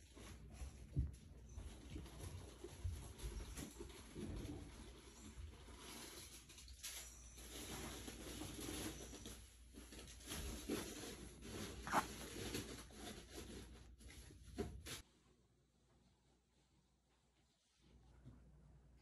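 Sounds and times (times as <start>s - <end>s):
hand rubbing dog fur: 10.7s - 14.3s.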